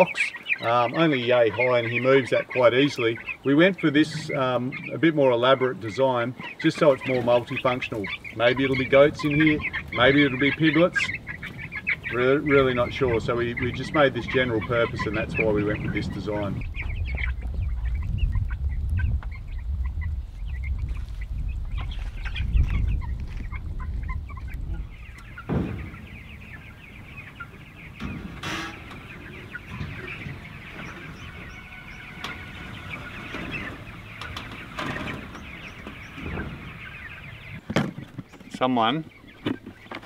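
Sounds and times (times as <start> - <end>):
chickens cheeping: 0.0 - 40.0
low rumble: 14.9 - 37.6
short knocks: 25.2 - 32.7.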